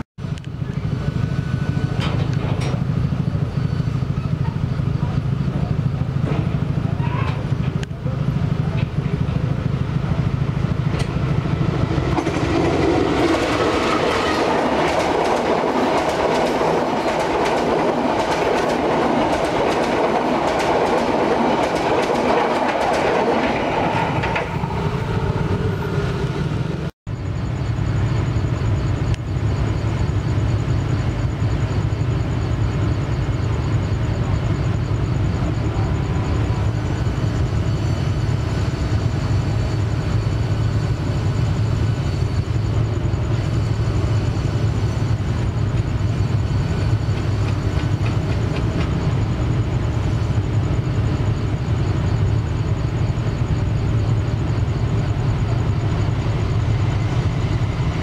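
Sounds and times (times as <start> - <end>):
train wheels clattering over rail joints: 1.8 - 3.2, 5.6 - 7.9, 10.8 - 24.8, 45.7 - 49.1.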